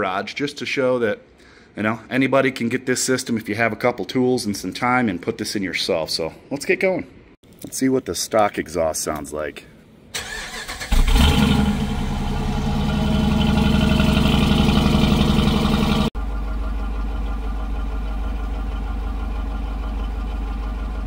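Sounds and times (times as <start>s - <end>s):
engine exhaust idling: 11.1s - 21.0s.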